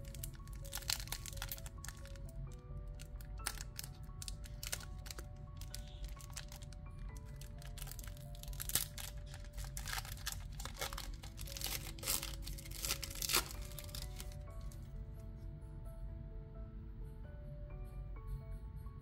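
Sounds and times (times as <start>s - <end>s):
foil wrapper crinkling and tearing: 0.0s - 2.3s, 2.9s - 14.5s
slow background music: 0.0s - 19.0s.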